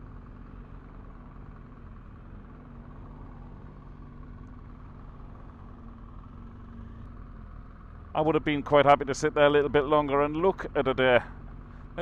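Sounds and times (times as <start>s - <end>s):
motorcycle engine humming: 0.0s - 12.0s.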